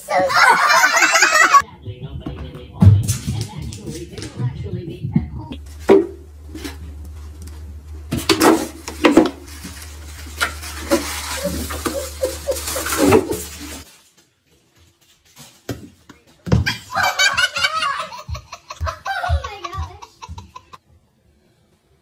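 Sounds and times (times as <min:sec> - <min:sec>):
child giggling: 0:00.1 - 0:01.6, 0:11.4 - 0:13.2, 0:16.6 - 0:20.8
people laughing: 0:00.1 - 0:01.6, 0:11.4 - 0:13.8, 0:16.7 - 0:20.8
steady low hum: 0:01.7 - 0:13.8.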